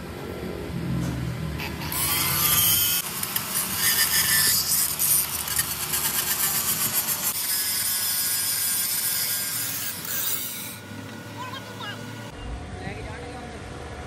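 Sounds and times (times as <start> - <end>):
angle grinder grinding metal: 1.6 - 10.9.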